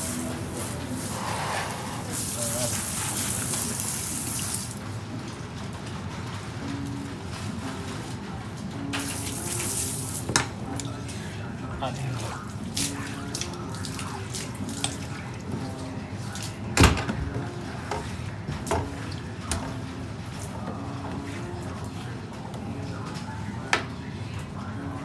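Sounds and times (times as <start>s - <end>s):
spray faucet spraying into sink: 2.1s - 4.8s.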